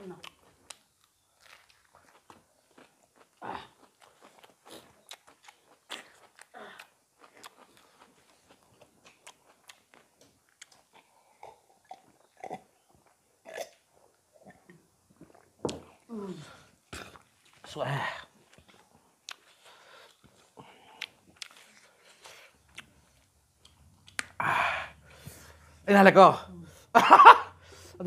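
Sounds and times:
chewing and mouth smacking: 0:00.2 - 0:15.8, 0:18.4 - 0:24.4.

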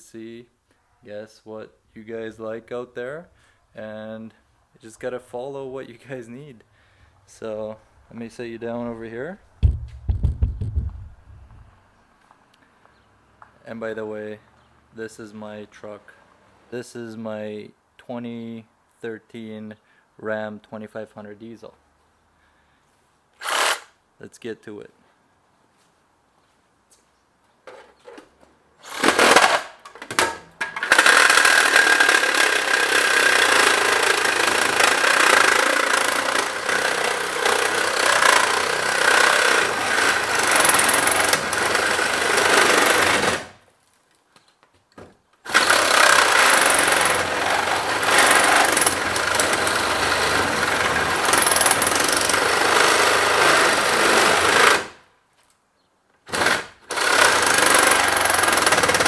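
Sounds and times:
reciprocating saw cutting metal: 0:30.9 - 0:43.5, 0:45.5 - 0:54.9.

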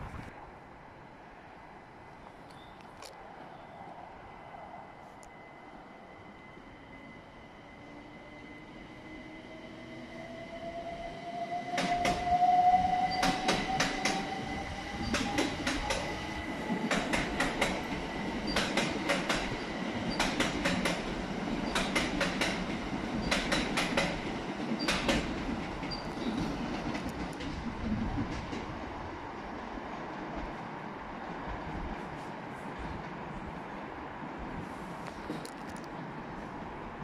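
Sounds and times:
train rumble: 0:03.2 - 0:37.0
wheels clicking over rail joints: 0:16.7 - 0:28.7.

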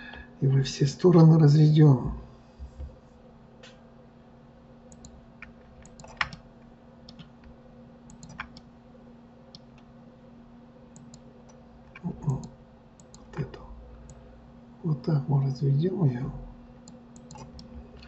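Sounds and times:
low electrical hum: 0:00.0 - 0:18.0
keyboard typing and mouse clicks: 0:04.9 - 0:08.7, 0:10.9 - 0:14.2, 0:16.8 - 0:18.0.

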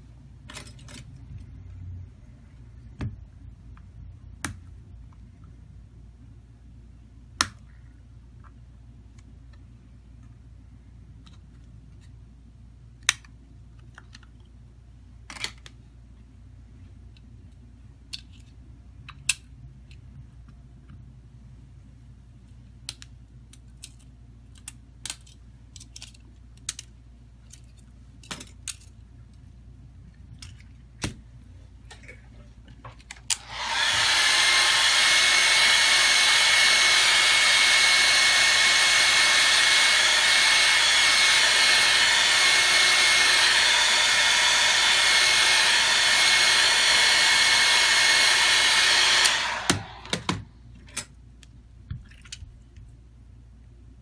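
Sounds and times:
clicks and taps of small parts: 0:22.8 - 0:28.9
hot-air blower whining: 0:33.2 - 0:50.6.

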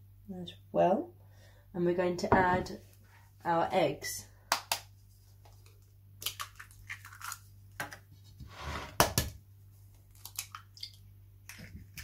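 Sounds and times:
eggshells cracking: 0:06.2 - 0:08.0, 0:10.0 - 0:12.0.

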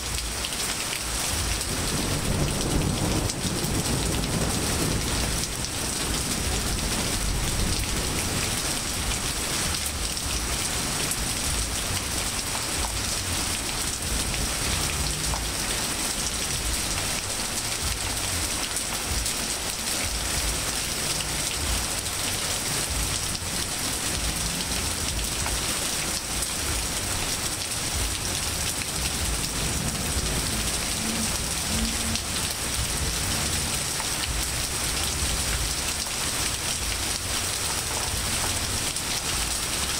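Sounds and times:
rain on grass and pavement: 0:00.0 - 0:39.9.

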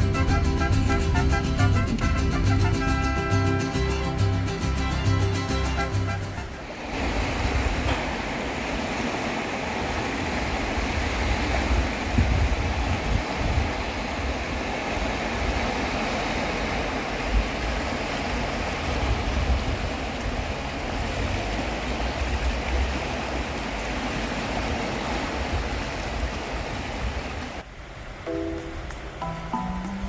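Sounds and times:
music: 0:00.0 - 0:06.6, 0:28.3 - 0:30.0
waves lapping over rocks: 0:05.5 - 0:28.1
low gusty rumble: 0:06.3 - 0:17.8.

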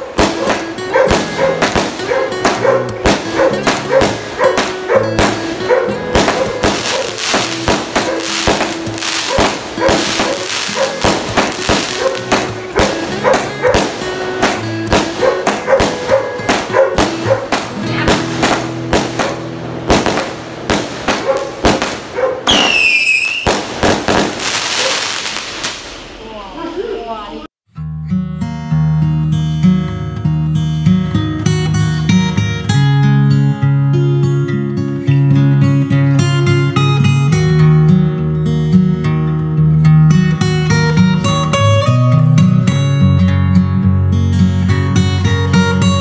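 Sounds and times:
background music: 0:00.0 - 0:25.7
fireworks bursting and crackling: 0:00.0 - 0:27.0
falling firework whistle: 0:06.2 - 0:12.9, 0:21.1 - 0:26.0.

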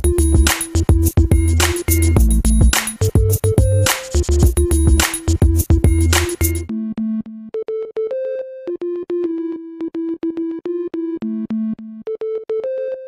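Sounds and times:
electronic drums and bass: 0:00.0 - 0:06.7
repeating synthesizer melody: 0:00.0 - 0:13.0.

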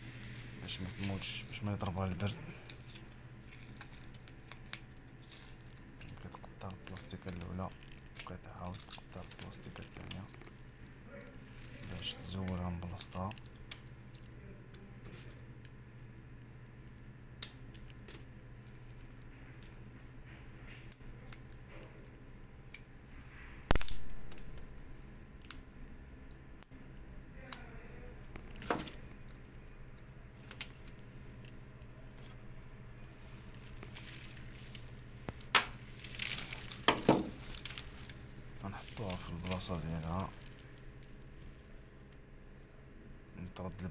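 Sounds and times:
sharp crack: 0:23.7 - 0:24.4.

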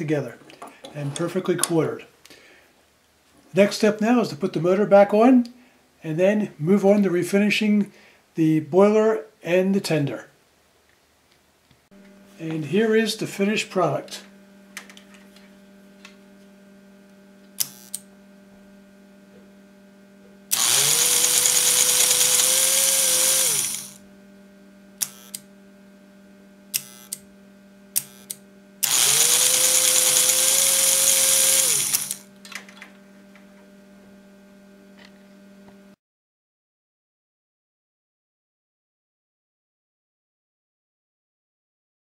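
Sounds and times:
toy train motor whine: 0:17.6 - 0:18.0, 0:20.5 - 0:24.0, 0:25.0 - 0:25.4, 0:26.7 - 0:27.2, 0:28.0 - 0:32.3.

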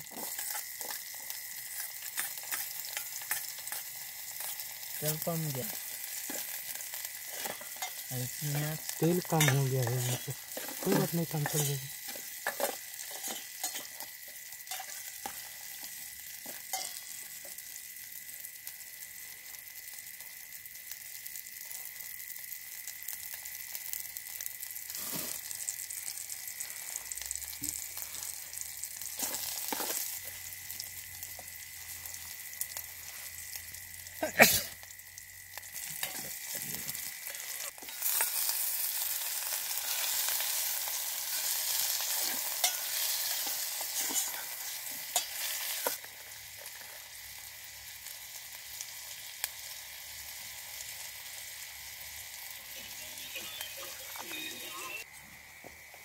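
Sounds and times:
vegetables sizzling in oil: 0:00.0 - 0:56.0
steel spoon scraping pot: 0:09.4 - 0:14.0, 0:42.1 - 0:46.0.

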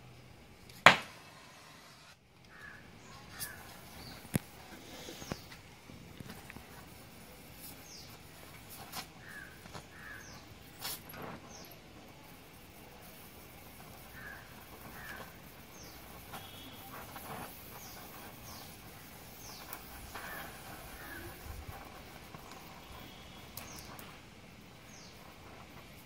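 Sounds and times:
welding torch flame hissing: 0:00.4 - 0:26.0
birds chirping: 0:02.5 - 0:05.6, 0:07.2 - 0:11.8, 0:13.7 - 0:24.2.

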